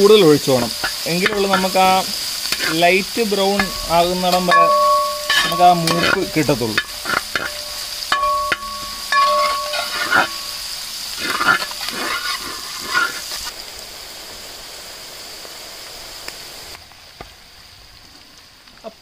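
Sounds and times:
metal spatula scraping a pan: 0.0 - 13.5
oil sizzling: 0.0 - 19.0.

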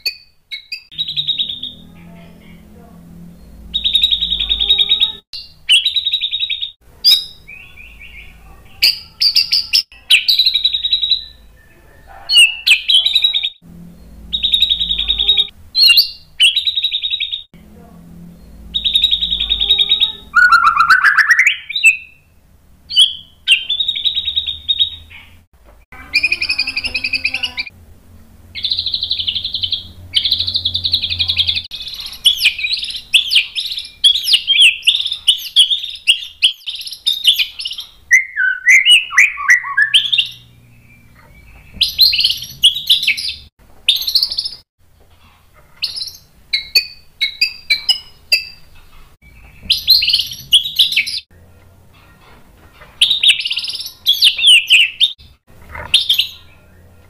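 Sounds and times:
bird singing whistled phrases: 0.0 - 2.0, 3.3 - 17.5, 18.7 - 22.3, 22.9 - 25.2, 28.6 - 44.6, 49.6 - 51.2, 53.0 - 55.2.

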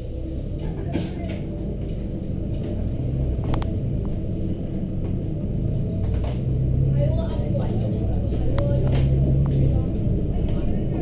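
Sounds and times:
bus diesel engine rumble: 0.0 - 11.0.

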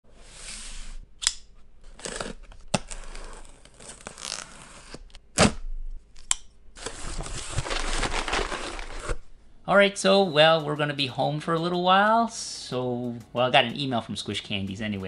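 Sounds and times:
knife blade scraping along tape: 0.2 - 5.1
cardboard rustling: 6.8 - 9.2.

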